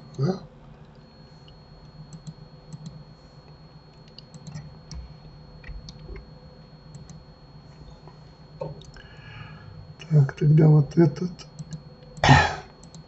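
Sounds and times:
faint high whine: 0.0 - 13.0
low electrical hum: 0.0 - 13.0
computer mouse clicks: 0.8 - 3.0, 3.9 - 5.0, 6.9 - 7.2, 11.5 - 12.2, 12.8 - 13.0.

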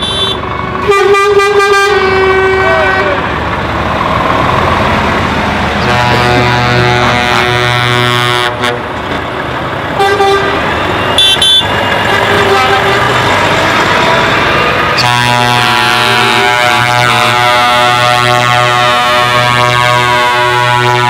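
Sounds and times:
truck air horn blasts: 0.0 - 3.2, 5.8 - 8.9, 10.0 - 13.4, 15.0 - 21.0
truck engines: 0.0 - 21.0.

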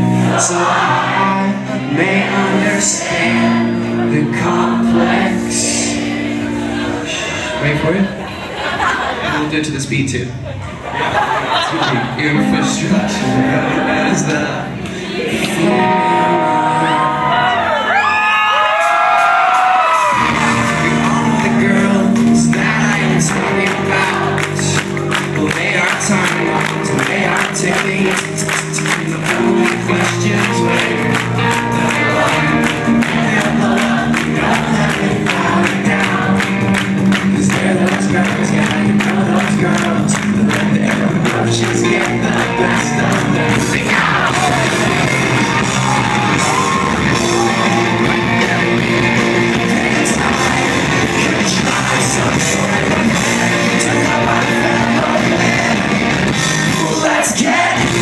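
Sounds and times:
person singing: 0.0 - 7.6, 12.2 - 18.2, 20.0 - 58.0
keyboard: 10.6 - 58.0
electric guitar: 12.4 - 58.0
drums: 17.9 - 58.0.

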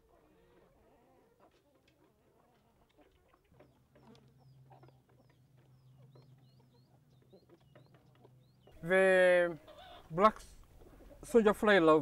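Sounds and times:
hens clucking softly: 0.0 - 11.5
beaks pecking at feeder tray: 1.4 - 8.8.

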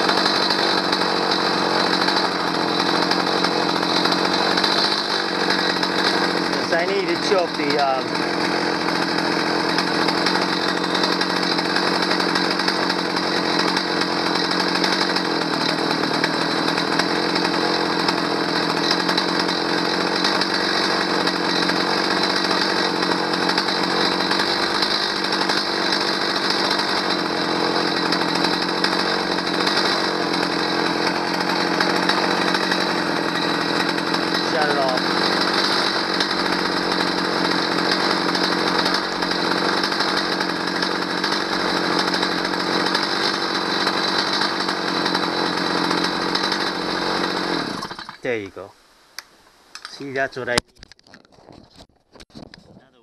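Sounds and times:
chainsaw engine running: 0.0 - 48.7, 49.8 - 50.6.

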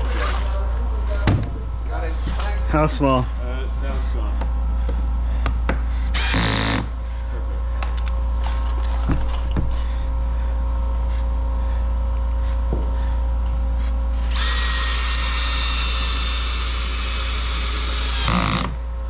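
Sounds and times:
power drill driving a screw: 6.2 - 6.9, 14.2 - 18.8.

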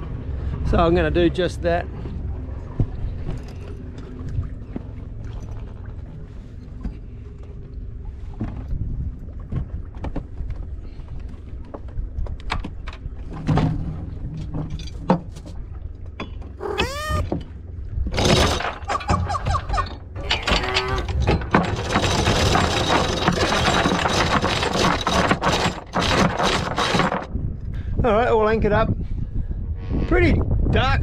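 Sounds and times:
windlass squeal: 16.6 - 17.3, 18.8 - 21.2
anchor chain rattling: 20.0 - 27.3.

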